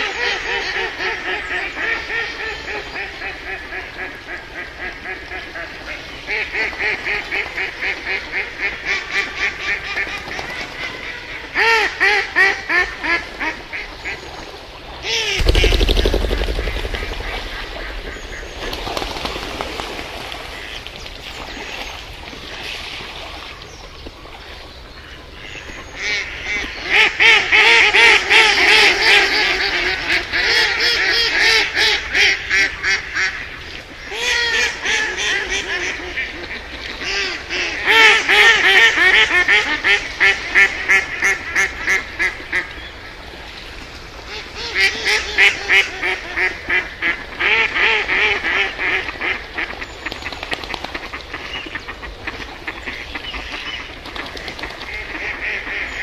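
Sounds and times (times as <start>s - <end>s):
ducks quacking: 15.1s - 21.6s, 44.3s - 50.2s, 50.8s - 56.0s.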